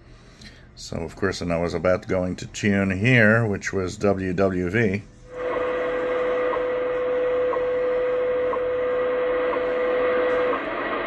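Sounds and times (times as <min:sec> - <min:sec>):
steady radio tone: 0:05.3 - 0:11.0.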